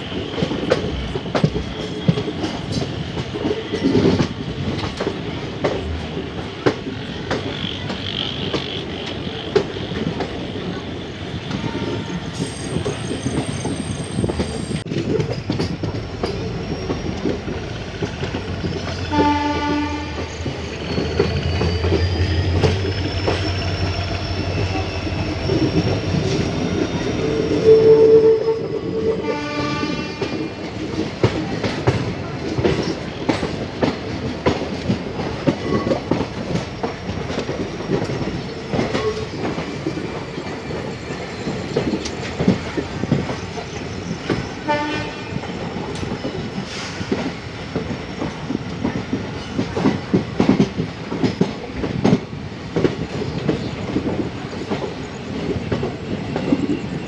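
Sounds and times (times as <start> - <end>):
train rumbling: 0.0 - 57.0
wheels clacking over rail joints: 11.4 - 27.6
train horn blast: 19.1 - 20.3, 27.6 - 30.5, 44.6 - 45.4.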